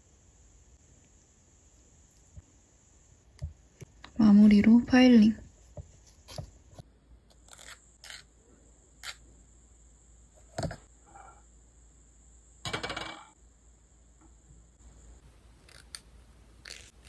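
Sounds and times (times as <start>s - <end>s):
nail file scraping fingernail: 7.4s - 8.3s, 16.6s - 16.9s.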